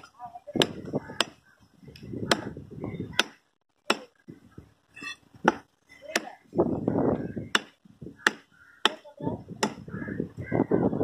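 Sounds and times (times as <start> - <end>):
knife chopping on wooden block: 7.5 - 9.0.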